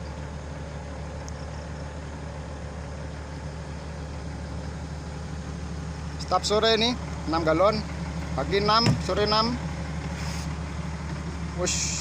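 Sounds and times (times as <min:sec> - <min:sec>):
excavator diesel engine idling: 0:00.0 - 0:12.0.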